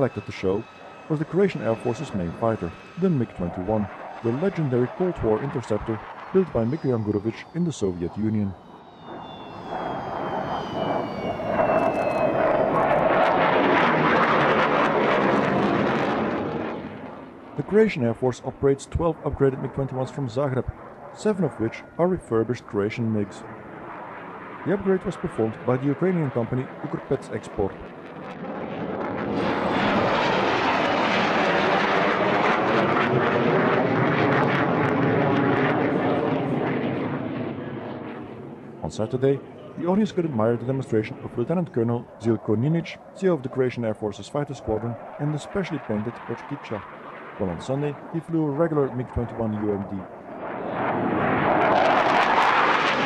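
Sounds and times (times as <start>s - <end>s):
falling whine: 0.0s - 17.8s, 23.2s - 43.3s
jet engine roar: 0.0s - 53.0s.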